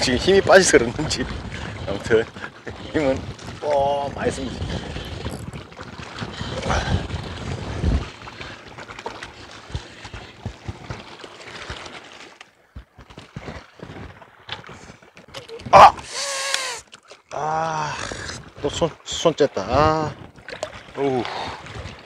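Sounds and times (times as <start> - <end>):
wind rumbling on microphone: 0.0 - 11.9, 18.0 - 22.0.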